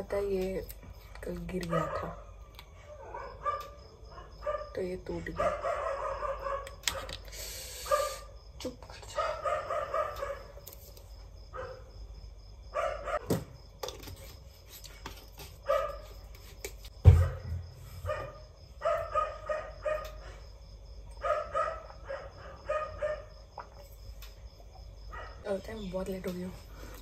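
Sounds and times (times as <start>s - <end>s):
dog barking: 1.7s - 7.1s, 7.8s - 8.3s, 9.1s - 10.6s, 11.5s - 11.9s, 12.7s - 13.3s, 15.6s - 16.1s, 17.1s - 20.4s, 21.2s - 23.4s, 25.1s - 25.4s
loud thump: 17.0s - 17.8s.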